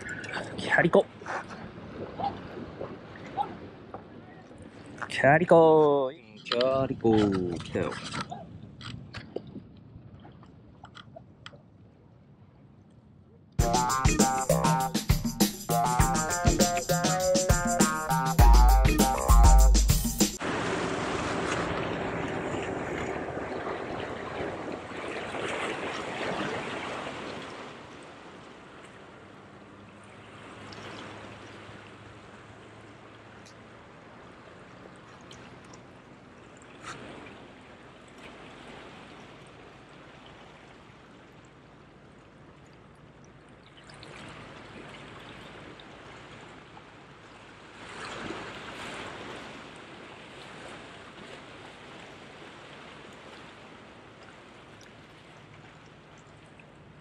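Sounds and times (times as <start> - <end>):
waves splashing against rocks: 20.4 - 28.8.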